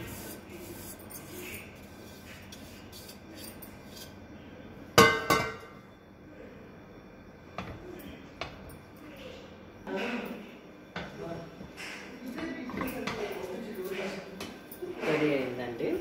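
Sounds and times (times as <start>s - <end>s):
spatula working sticky mixture: 0.0s - 4.3s.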